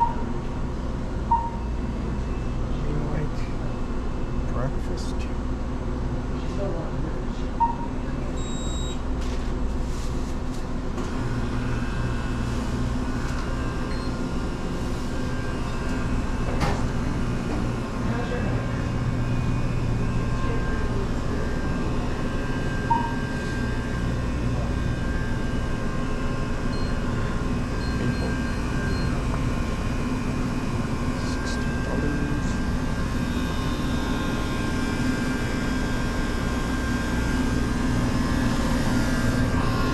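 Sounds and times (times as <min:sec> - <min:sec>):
refrigerators and ventilation humming: 0:00.0 - 0:39.9
short beep: 0:01.3 - 0:01.8, 0:07.6 - 0:09.0, 0:22.9 - 0:23.3.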